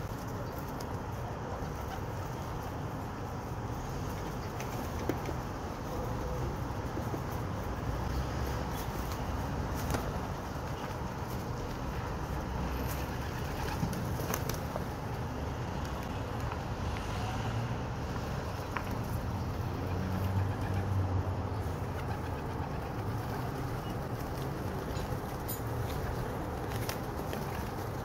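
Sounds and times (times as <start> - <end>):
pigeons pecking: 0.0 - 16.7, 21.6 - 28.0
wings fluttering: 12.8 - 15.1, 21.7 - 28.0.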